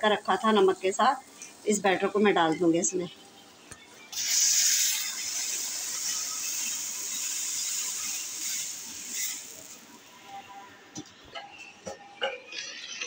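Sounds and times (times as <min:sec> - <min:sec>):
hot oil sizzling: 0:00.0 - 0:03.0, 0:04.1 - 0:10.4.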